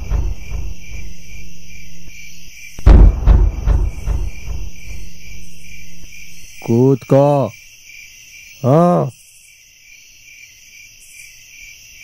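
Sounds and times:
loud deep boom with echoes: 0:00.0 - 0:01.7, 0:02.8 - 0:06.1
crickets chirping: 0:00.0 - 0:12.0.

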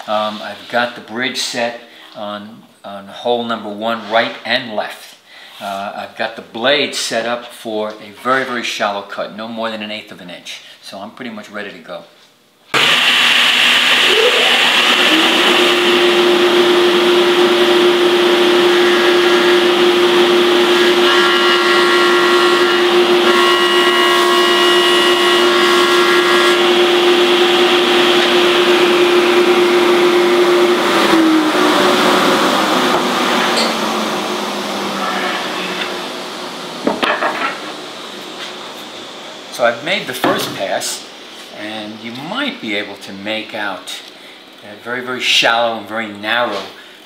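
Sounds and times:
saw blade cutting wood: 0:12.8 - 0:29.8
table saw winding down: 0:12.8 - 0:37.6
table saw running: 0:12.8 - 0:38.2.

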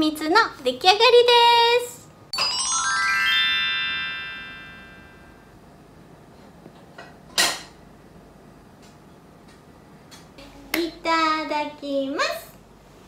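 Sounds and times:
bright rising chord sting: 0:02.4 - 0:05.6.

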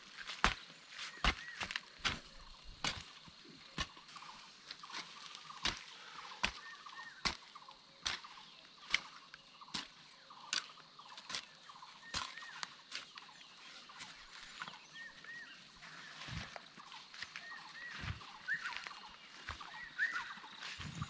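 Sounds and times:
small birds chirping: 0:00.0 - 0:21.0
hoe chopping into soil: 0:00.2 - 0:13.2.

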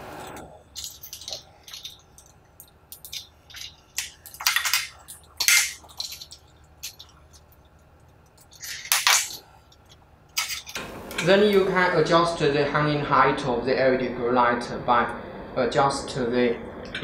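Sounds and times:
metal hooks clinking on metal bars: 0:00.7 - 0:07.2, 0:08.4 - 0:11.3.

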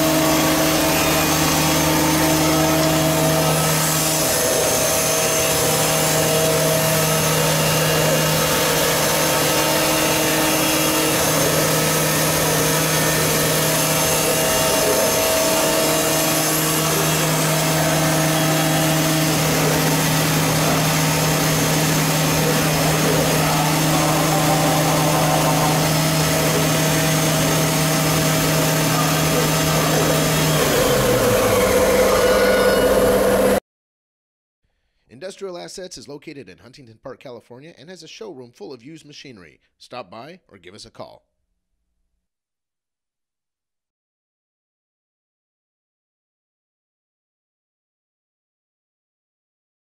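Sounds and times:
machining center humming and whining: 0:00.0 - 0:33.6.

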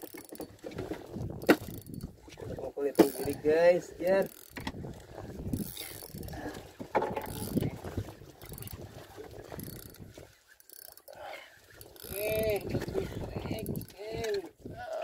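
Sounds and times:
fishing reel clicking and scraping: 0:00.0 - 0:00.6, 0:01.4 - 0:02.1, 0:02.8 - 0:06.5, 0:07.2 - 0:07.8, 0:08.4 - 0:08.9, 0:09.5 - 0:14.4.

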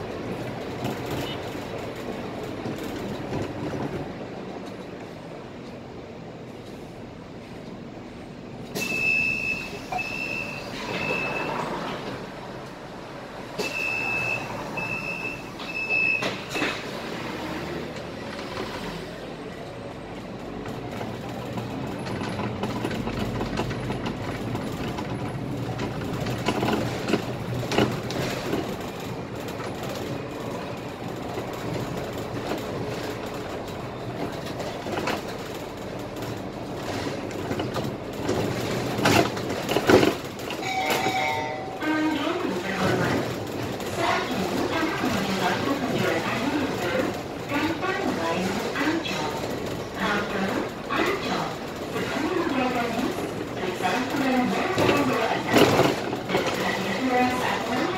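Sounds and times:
bus engine and road noise: 0:00.0 - 0:57.9
bus body knocks and rattles: 0:20.6 - 0:40.6, 0:54.2 - 0:56.8.

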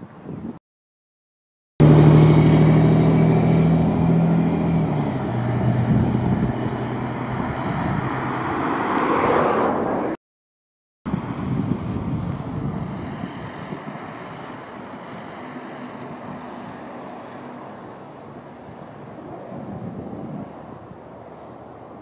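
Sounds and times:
vehicle engine humming: 0:01.8 - 0:10.2, 0:11.1 - 0:22.0
wide rushing noise: 0:08.0 - 0:10.2, 0:11.1 - 0:22.0.

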